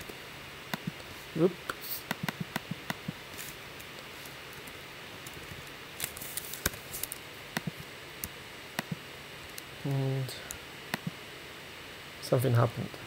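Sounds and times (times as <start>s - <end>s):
faint steady hiss: 0.0s - 13.0s
mouse buttons clicking: 0.7s - 1.1s, 2.1s - 3.2s.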